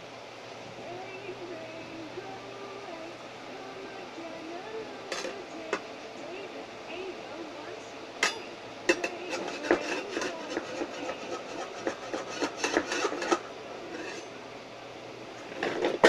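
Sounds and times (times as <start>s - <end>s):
spatula scraping metal pot: 8.9s - 14.4s.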